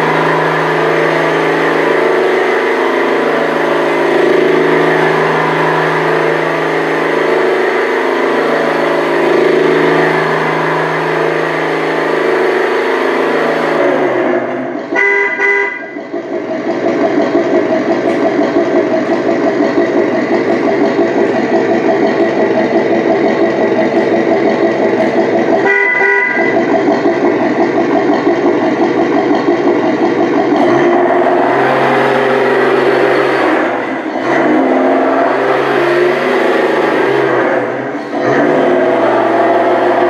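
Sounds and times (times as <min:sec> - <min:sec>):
simulated engine sound: 0:00.0 - 0:40.0
horn toot: 0:14.9 - 0:16.0, 0:25.6 - 0:26.6.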